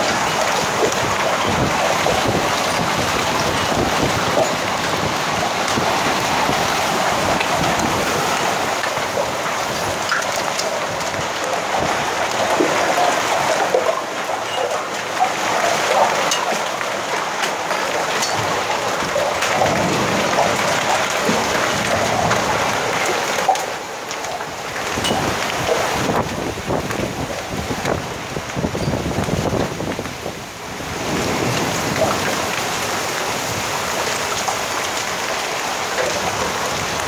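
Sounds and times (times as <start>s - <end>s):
heavy rain hissing: 0.0s - 29.6s
hail hits: 0.0s - 37.0s.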